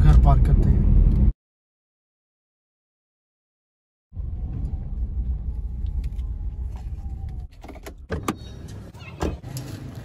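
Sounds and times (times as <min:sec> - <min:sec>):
car engine rumbling: 0:04.2 - 0:10.0.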